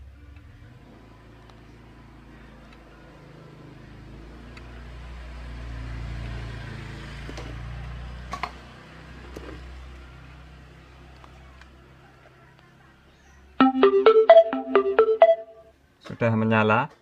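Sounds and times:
vehicle passing: 0.6 - 11.1.

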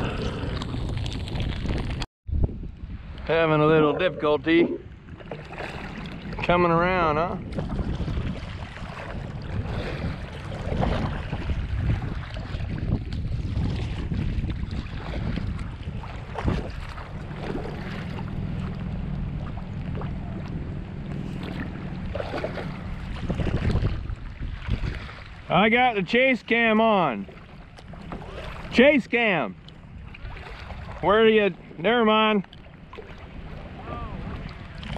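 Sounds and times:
wind buffeting microphone: 0.0 - 34.9
kayak paddle strokes in water: 4.5 - 34.9
low steady hum: 14.6 - 24.6.

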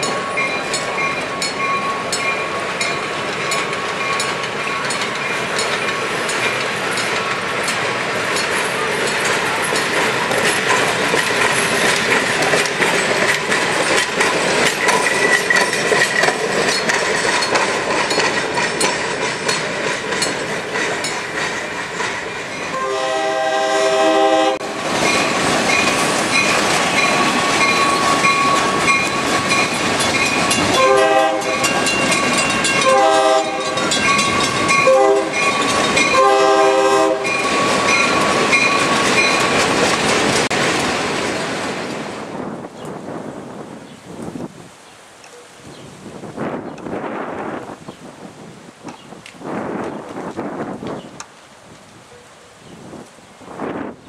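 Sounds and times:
train wheels clattering on rails: 0.0 - 43.1, 48.8 - 51.9
locomotive air horn blasts: 22.7 - 24.8, 30.8 - 31.7, 32.8 - 33.9, 34.8 - 35.5, 36.1 - 37.4.

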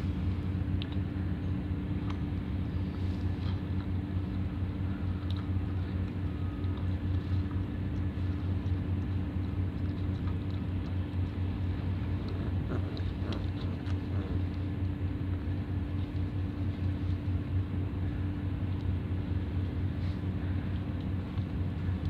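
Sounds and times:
machine humming: 0.0 - 22.0.

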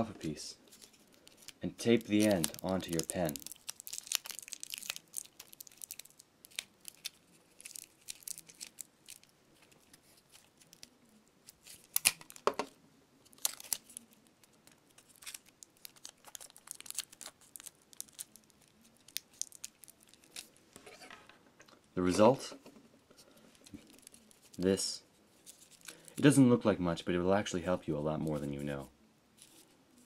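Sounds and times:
sticky tape crackling: 0.6 - 12.6, 13.2 - 20.7, 23.4 - 26.2
foil crinkling: 0.7 - 12.5, 13.3 - 20.6, 23.3 - 24.7, 25.4 - 26.2.

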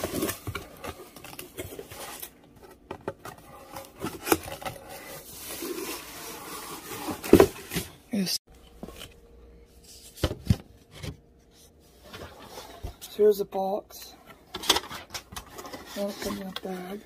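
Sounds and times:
cardboard scraping and rubbing: 0.0 - 8.0, 15.3 - 17.0.

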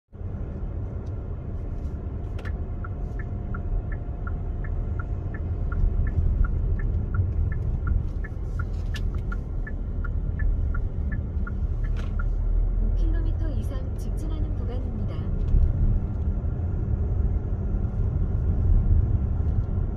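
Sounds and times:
car road and engine rumble: 0.1 - 19.9
regular two-pitch ticking: 2.5 - 12.5.

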